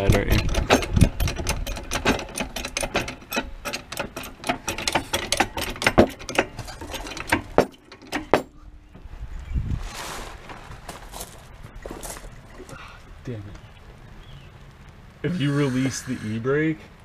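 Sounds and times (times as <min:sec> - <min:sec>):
hand tools clicking metallically: 0:00.0 - 0:08.5
soft rustle: 0:09.6 - 0:13.2.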